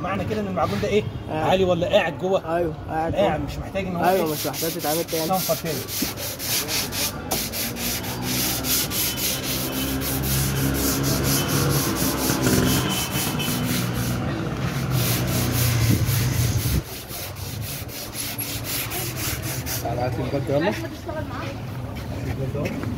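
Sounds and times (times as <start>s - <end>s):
sandpaper sanding car body: 4.0s - 20.7s.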